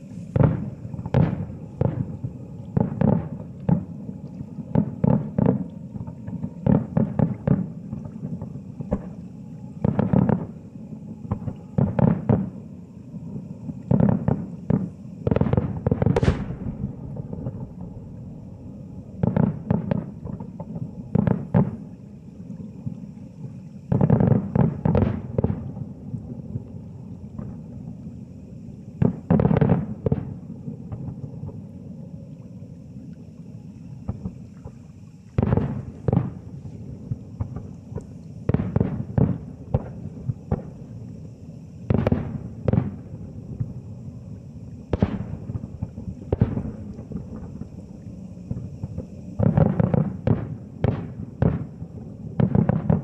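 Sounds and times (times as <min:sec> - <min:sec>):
distant firework booms: 0:00.3 - 0:03.9, 0:13.9 - 0:21.8, 0:38.5 - 0:40.8, 0:41.9 - 0:43.8, 0:44.9 - 0:47.7, 0:52.4 - 0:53.0.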